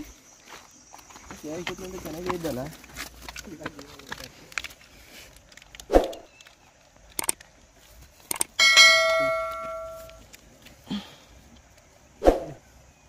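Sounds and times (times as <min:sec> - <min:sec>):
bell ding: 0:08.6 - 0:10.2.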